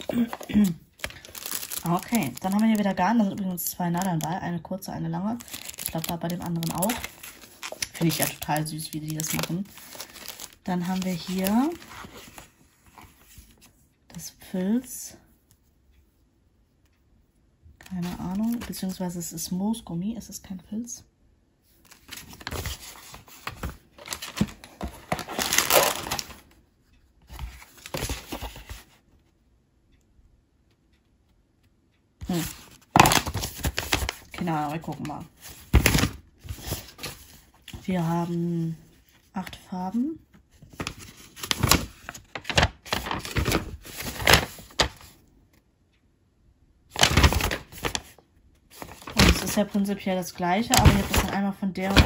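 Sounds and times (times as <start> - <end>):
plastic bag of beads rustling: 0.0 - 3.0, 5.3 - 11.8
paper crinkling: 0.0 - 4.4, 5.2 - 13.7, 21.9 - 26.6, 27.3 - 29.0, 32.2 - 38.4, 40.6 - 45.1, 47.0 - 52.0.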